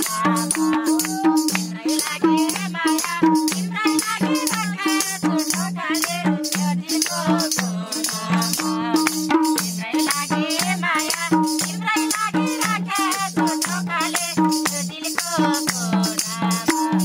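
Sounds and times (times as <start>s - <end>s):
hands clapping: 0.0s - 1.7s, 5.5s - 12.3s
hand drum folk rhythm: 0.0s - 17.0s.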